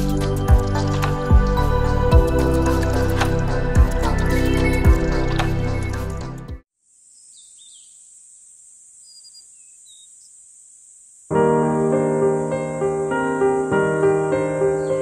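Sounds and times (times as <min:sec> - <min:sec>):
piano music: 0:00.0 - 0:06.6, 0:11.3 - 0:15.0.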